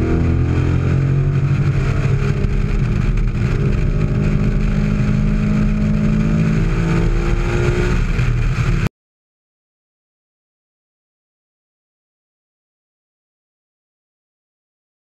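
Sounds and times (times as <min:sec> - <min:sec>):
car engine at full throttle: 0:00.0 - 0:08.9.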